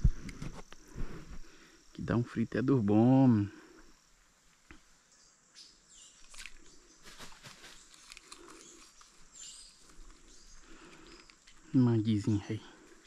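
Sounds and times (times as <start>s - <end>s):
high insect whine: 0.0s - 13.0s
bird chirps: 5.1s - 12.4s
small clicks and rustles: 6.2s - 11.7s.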